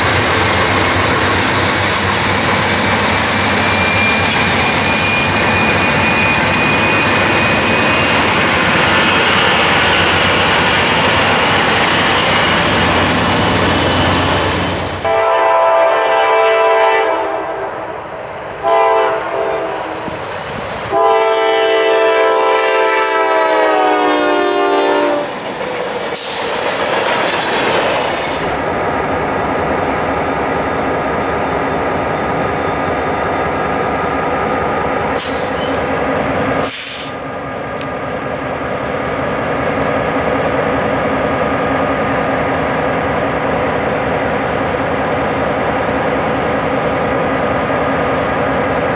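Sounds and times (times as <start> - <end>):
diesel locomotive idling: 0.0 - 20.2
train rolling by: 0.0 - 48.9
locomotive multi-chime horn: 15.0 - 20.1, 20.9 - 25.3
short hiss: 35.2 - 36.0, 36.6 - 37.2.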